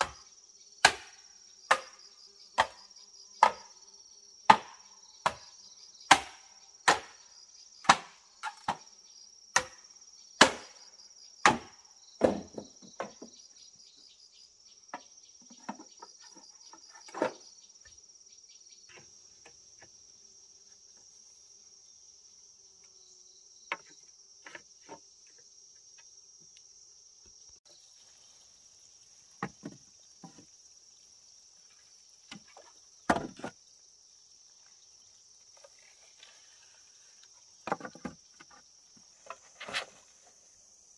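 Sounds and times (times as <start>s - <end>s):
insects droning: 0.0s - 40.9s
chopping blows on wood: 0.8s - 2.0s, 3.4s - 3.7s, 4.5s - 5.5s, 6.1s - 7.2s, 7.8s - 8.8s, 9.6s - 9.8s, 10.4s - 10.8s, 11.4s - 13.1s, 33.1s - 33.5s.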